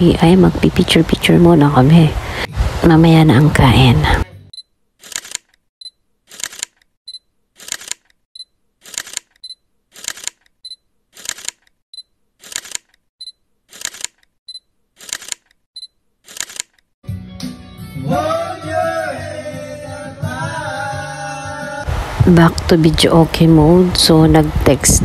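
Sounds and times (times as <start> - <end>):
camera shutter clicks: 5.0 - 5.5, 6.3 - 6.8, 7.6 - 8.1, 8.8 - 9.4, 10.0 - 10.4, 11.2 - 11.6, 12.4 - 12.9, 13.7 - 14.2, 15.0 - 15.5, 16.3 - 16.8
backing music: 17.0 - 21.9
man singing karaoke: 18.0 - 21.9.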